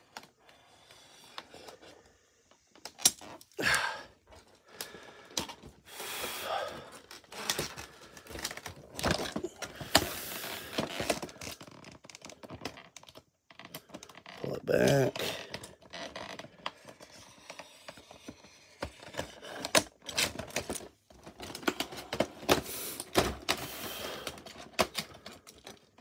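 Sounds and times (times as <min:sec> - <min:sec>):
plastic scraping and crackling: 0:06.6 - 0:26.0.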